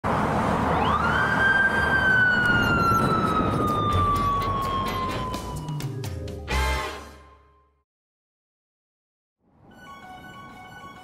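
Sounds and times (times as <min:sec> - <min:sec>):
traffic noise: 0:00.0 - 0:05.9, 0:09.4 - 0:11.0
motorcycle siren wailing: 0:00.7 - 0:06.1.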